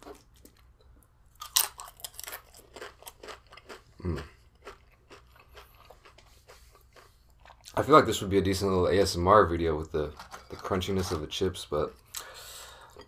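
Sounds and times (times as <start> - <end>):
chips crunching and chewing: 1.3 - 7.8.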